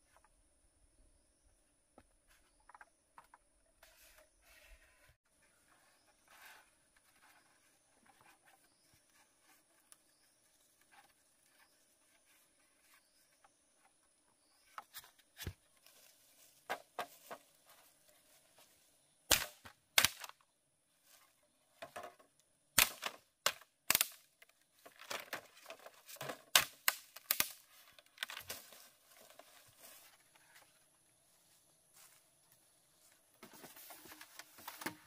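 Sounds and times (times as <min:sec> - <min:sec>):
sharp knocks and cracks: 0:19.3 - 0:20.4, 0:22.8 - 0:25.5, 0:26.2 - 0:27.6.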